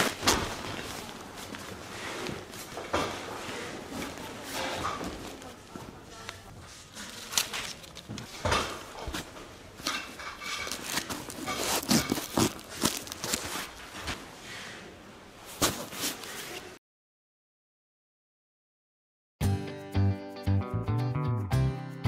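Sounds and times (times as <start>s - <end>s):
tent fabric rustling and crinkling: 0.0s - 5.9s, 9.2s - 14.3s, 15.4s - 16.7s.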